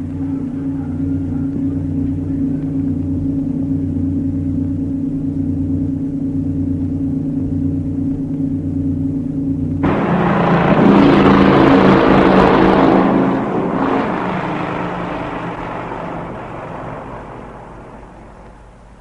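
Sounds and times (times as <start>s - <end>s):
loud rushing noise: 9.8s - 18.8s
low droning chord: 9.8s - 18.9s.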